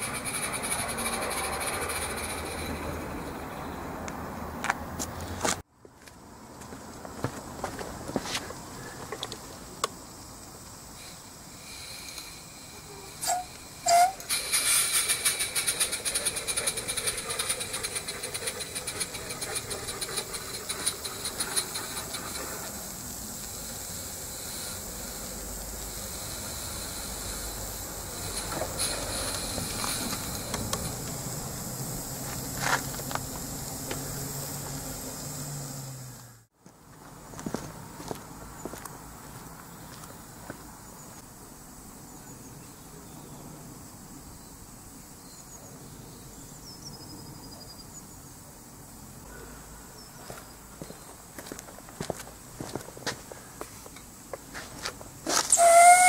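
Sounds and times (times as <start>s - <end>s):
steam hissing: 0.0s - 3.4s, 10.8s - 36.4s, 55.3s - 56.0s
rapid steam exhaust beats: 0.0s - 4.2s, 8.4s - 36.5s, 48.6s - 56.0s
steam whistle toots: 12.1s - 18.4s, 55.5s - 56.0s.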